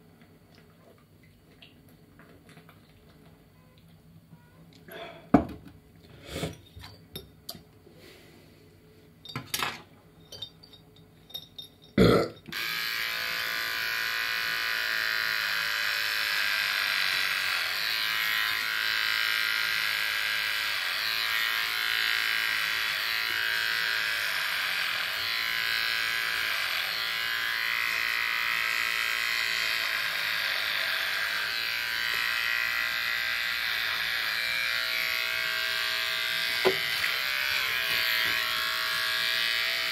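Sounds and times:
electric hair clipper buzzing: 0:12.1 - 0:39.9.

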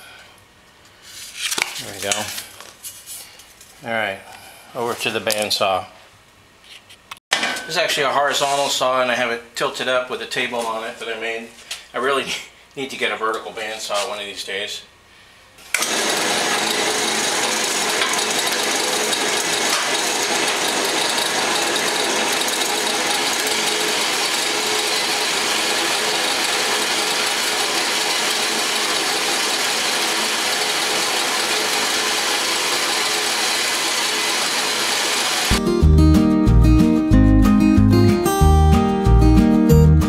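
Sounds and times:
bandsaw cutting metal tube: 0:15.8 - 0:35.6.

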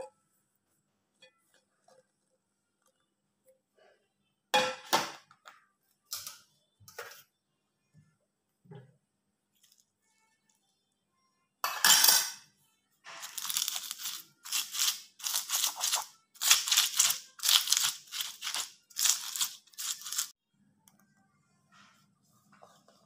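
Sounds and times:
stone pestle grinding: 0:13.2 - 0:20.3.

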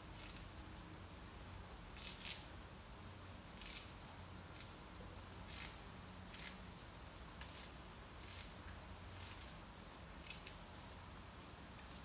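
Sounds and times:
greens stripped from stems: 0:00.0 - 0:00.5, 0:03.5 - 0:06.6, 0:07.4 - 0:09.6.

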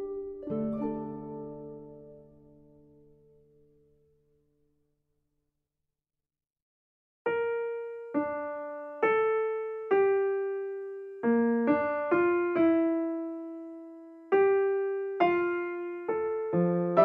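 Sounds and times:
slow solo piano melody: 0:07.3 - 0:17.0.

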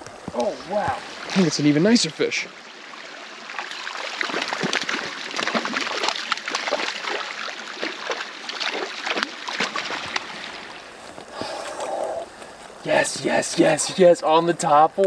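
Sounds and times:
fish splashing at water surface: 0:03.5 - 0:10.8.

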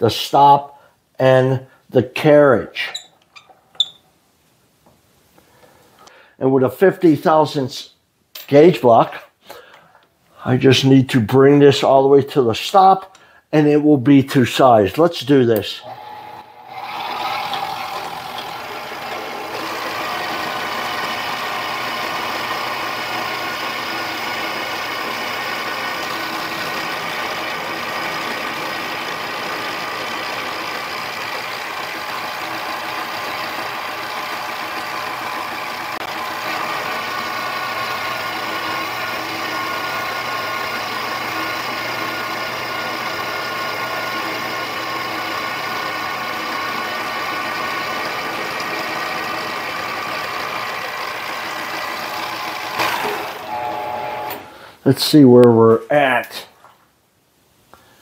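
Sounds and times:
lathe motor whine: 0:15.8 - 0:54.5.

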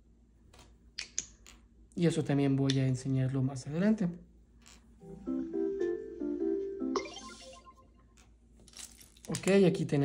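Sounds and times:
electronic toy jingle: 0:06.9 - 0:08.1.

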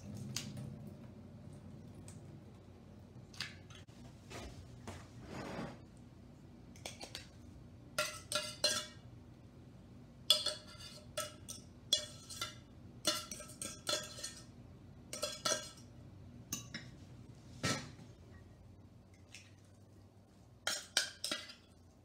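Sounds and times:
metal utensil clinking on tin cans: 0:08.0 - 0:09.0, 0:10.3 - 0:14.5, 0:15.1 - 0:15.9.

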